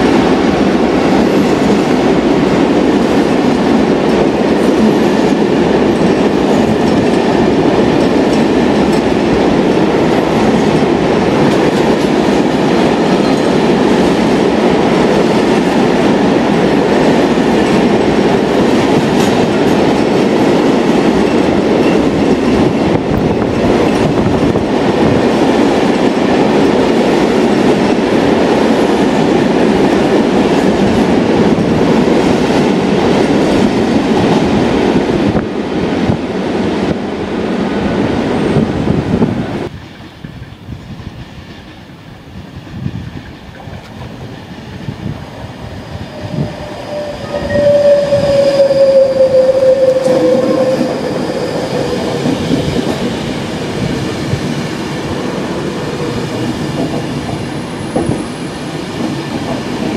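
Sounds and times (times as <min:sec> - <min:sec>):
freight train rumbling past: 0:00.0 - 0:59.9
electric train whining: 0:43.7 - 0:59.9.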